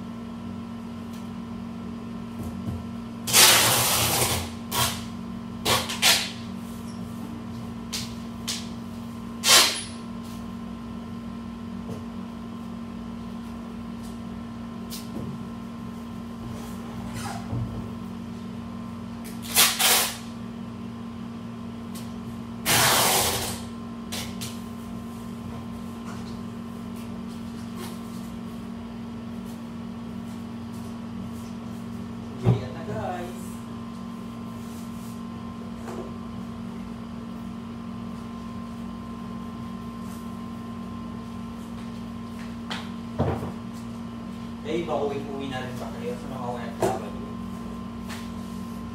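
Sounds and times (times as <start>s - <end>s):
steady low hum: 0.0s - 48.9s
packing tape ripping off roll: 3.3s - 5.1s, 5.7s - 6.4s, 9.4s - 9.9s, 19.4s - 20.2s, 22.6s - 23.7s.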